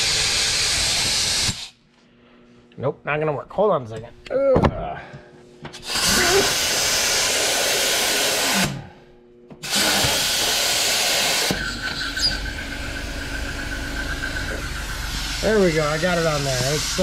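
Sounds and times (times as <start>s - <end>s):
compressed air hissing: 0.0s - 1.8s, 5.8s - 8.9s, 9.6s - 17.0s.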